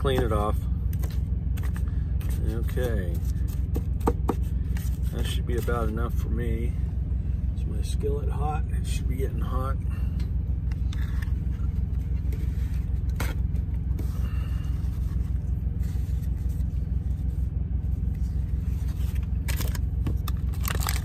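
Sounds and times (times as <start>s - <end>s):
steady low drone: 0.0s - 21.0s.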